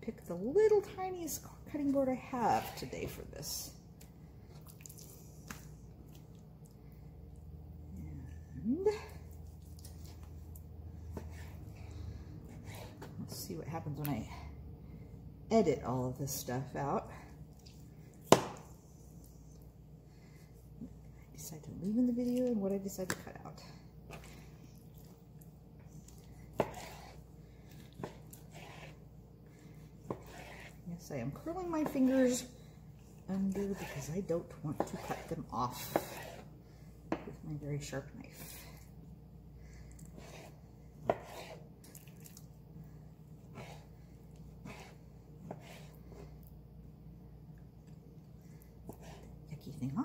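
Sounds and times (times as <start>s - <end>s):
knife slicing raw chicken: 26.5s - 27.2s, 33.7s - 36.5s, 40.2s - 41.6s.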